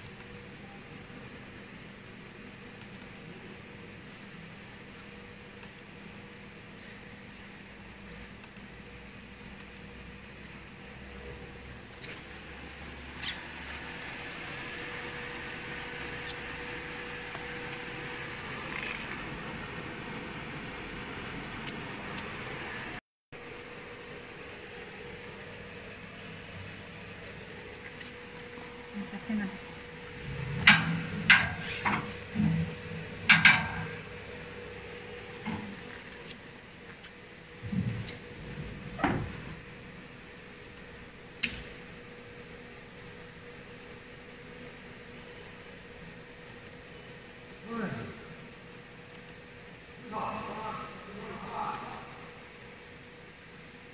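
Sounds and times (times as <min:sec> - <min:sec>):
test bench whirring hum: 0:00.0 - 0:53.9
sharp clicks and knocks: 0:33.3 - 0:33.9.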